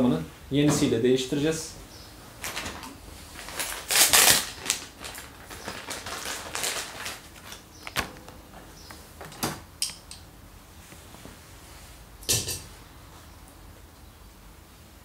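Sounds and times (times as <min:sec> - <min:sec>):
clothing rustling: 0:02.4 - 0:08.9.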